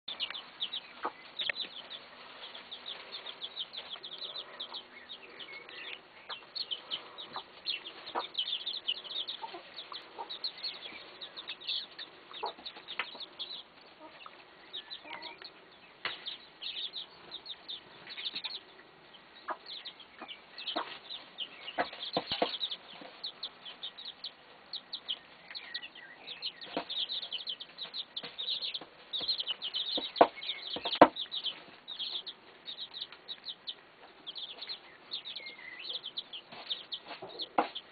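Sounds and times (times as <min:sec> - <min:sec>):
chicks peeping: 0:00.1 - 0:37.9.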